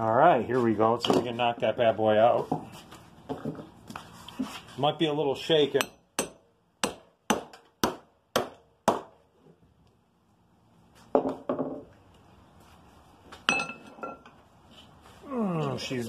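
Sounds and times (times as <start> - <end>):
metallic clink: 13.5 - 14.3.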